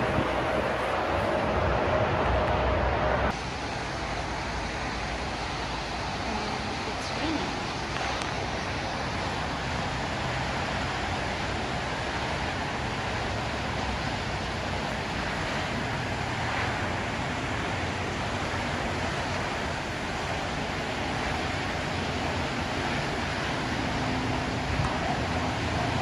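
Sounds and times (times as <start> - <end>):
low rumble: 0.0 - 6.9
rain hissing: 0.0 - 26.0
tyres on wet road: 0.0 - 26.0.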